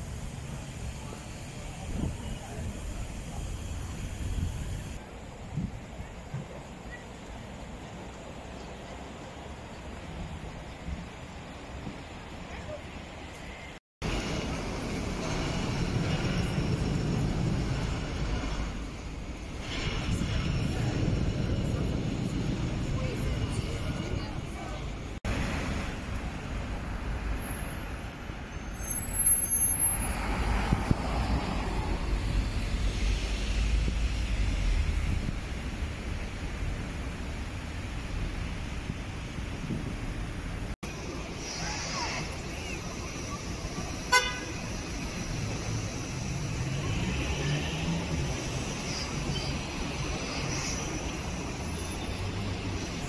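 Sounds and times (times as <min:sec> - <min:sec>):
road traffic rumble: 0:00.0 - 0:53.0
high-pitched squeal: 0:27.4 - 0:31.8, 0:41.0 - 0:53.0.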